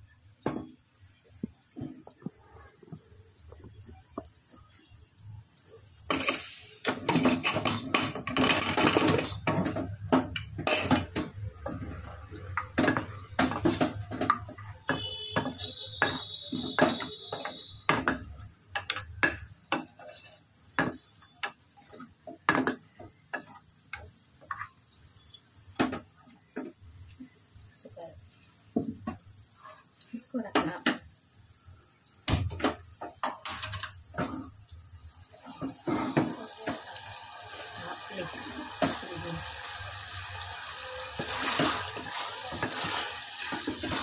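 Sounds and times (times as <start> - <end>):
metal ladle scraping a pot: 40.8 - 44.0.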